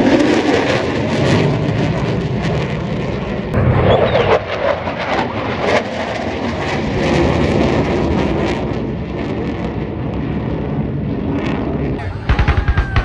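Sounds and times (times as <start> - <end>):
jet engines roaring overhead: 0.0 - 13.0.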